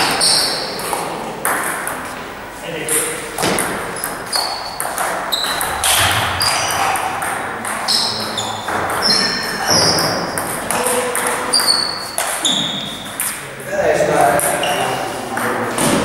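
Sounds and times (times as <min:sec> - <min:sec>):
shoes squeaking on floor: 0:00.0 - 0:00.7, 0:04.0 - 0:05.7, 0:07.9 - 0:10.2, 0:11.5 - 0:13.1, 0:14.5 - 0:15.1.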